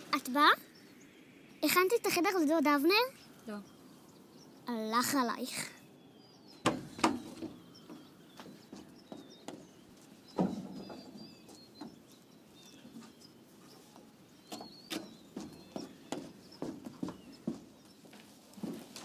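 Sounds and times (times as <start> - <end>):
small birds chirping: 0.0 - 19.0
footsteps on wooden deck: 6.6 - 19.0.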